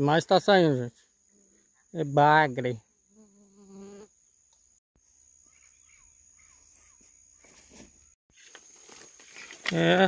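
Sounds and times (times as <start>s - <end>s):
high insect buzz: 2.8s - 10.0s
soft bird chirps: 4.5s - 8.2s.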